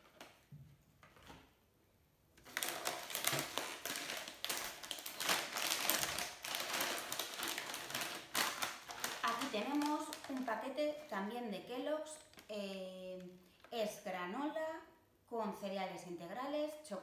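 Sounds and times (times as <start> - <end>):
food packaging rustling: 2.4 - 11.2, 12.2 - 12.5.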